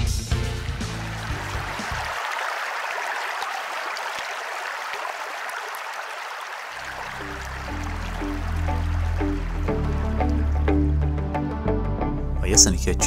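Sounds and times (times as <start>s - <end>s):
background music: 0.0s - 2.2s, 6.9s - 13.0s
flowing water rushing: 0.4s - 11.1s.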